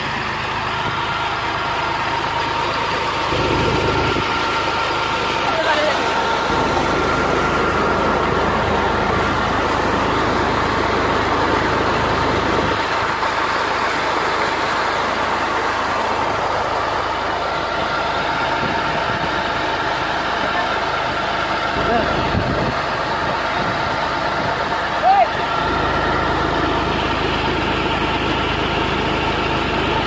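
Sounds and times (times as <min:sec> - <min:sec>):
tractor diesel engine running: 0:00.0 - 0:30.0.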